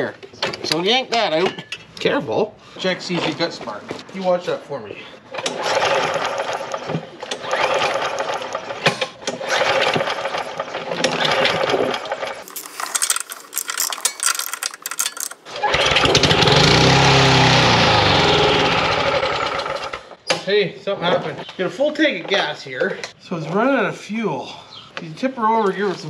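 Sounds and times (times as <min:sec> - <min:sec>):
lawn mower engine running: 0:05.5 - 0:20.1
clicks and clatter: 0:11.0 - 0:15.5.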